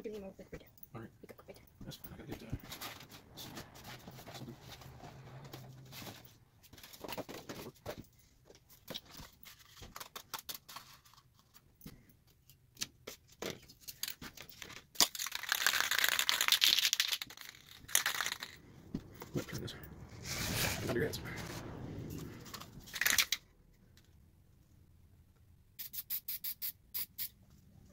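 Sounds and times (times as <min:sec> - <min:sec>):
handling clicks and rustles: 0:00.7 - 0:24.2
aerosol spray can hissing: 0:25.8 - 0:27.4.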